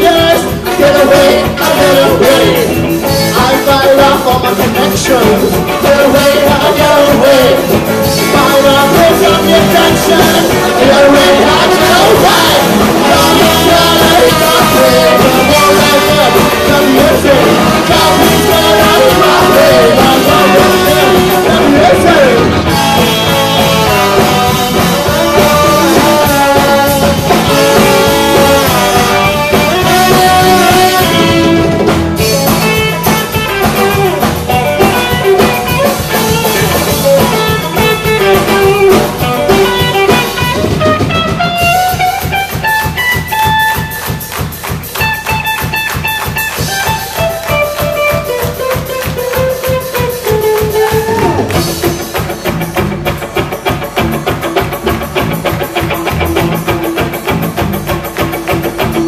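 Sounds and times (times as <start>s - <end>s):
saxophone: 0.0s - 52.7s
bass guitar: 0.0s - 59.0s
drum kit: 0.0s - 59.0s
electric guitar: 0.0s - 59.0s
trombone: 4.7s - 42.0s.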